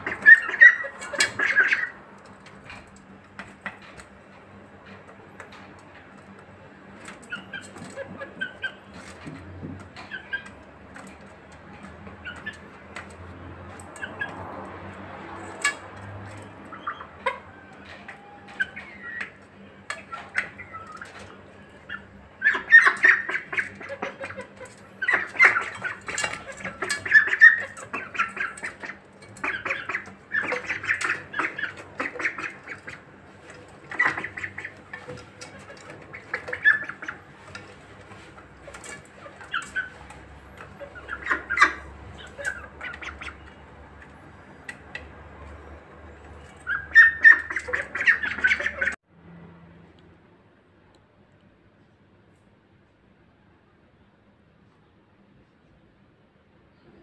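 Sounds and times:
young poultry squawking: 0:00.0 - 0:02.8, 0:07.0 - 0:11.2, 0:12.1 - 0:13.1, 0:13.7 - 0:43.9, 0:46.4 - 0:49.0
beaks pecking feed bowls: 0:00.0 - 0:49.0.

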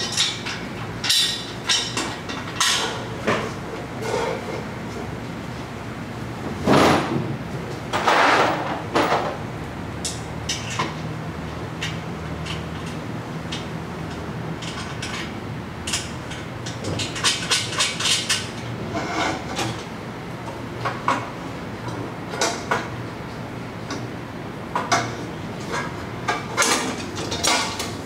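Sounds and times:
metal exhaust pipes clinking: 0:00.0 - 0:04.4.

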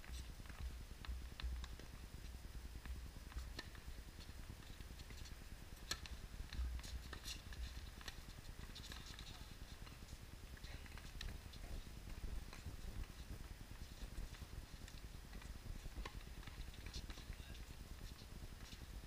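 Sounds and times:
tennis balls bouncing on court: 0:02.8 - 0:10.0, 0:13.9 - 0:18.8.

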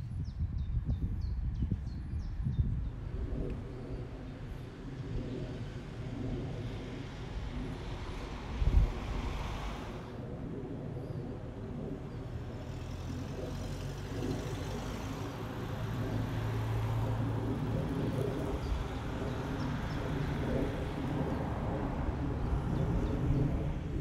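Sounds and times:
outdoor background noise: 0:00.0 - 0:24.0
vehicle engine humming: 0:05.9 - 0:24.0.

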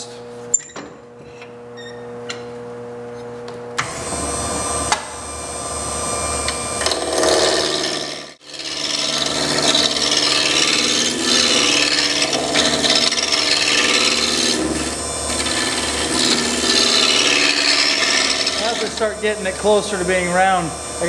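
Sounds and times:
wood lathe motor: 0:03.8 - 0:21.0
gouge cutting spinning wood: 0:06.5 - 0:21.0.

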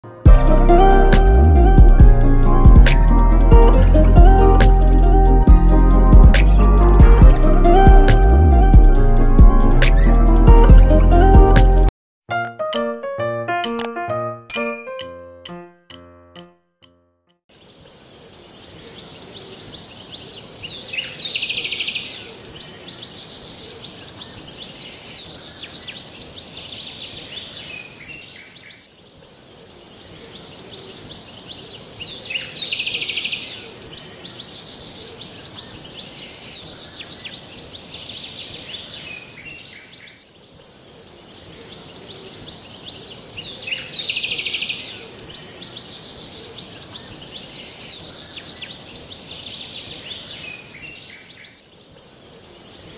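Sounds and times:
birds chirping: 0:09.6 - 0:10.7.

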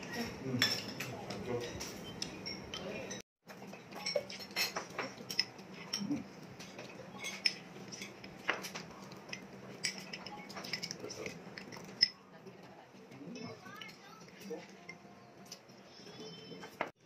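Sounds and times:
tableware clinking against plates: 0:00.0 - 0:12.2.

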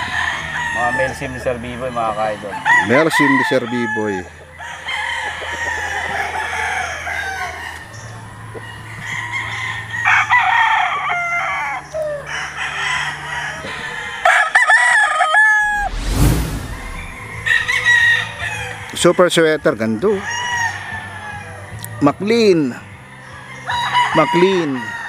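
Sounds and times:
roosters crowing: 0:00.0 - 0:16.0, 0:16.8 - 0:21.8, 0:22.7 - 0:25.0
loud rush of noise: 0:15.6 - 0:18.0.

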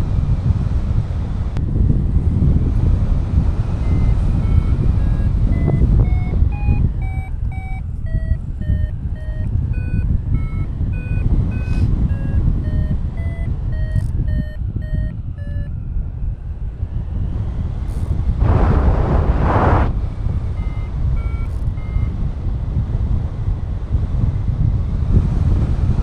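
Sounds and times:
wind on microphone: 0:00.0 - 0:26.0
variometer short beeps: 0:03.8 - 0:15.8, 0:20.6 - 0:22.2.

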